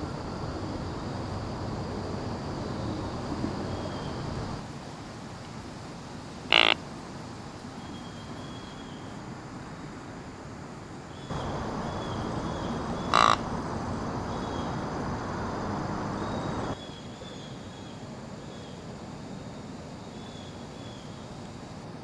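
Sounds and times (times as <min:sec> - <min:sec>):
crow cawing: 0:06.5 - 0:06.8, 0:13.0 - 0:13.5
steady rushing noise: 0:11.3 - 0:16.8.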